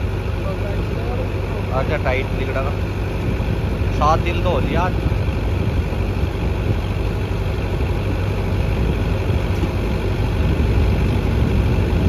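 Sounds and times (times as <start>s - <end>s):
tractor diesel engine rumbling: 0.0s - 12.0s.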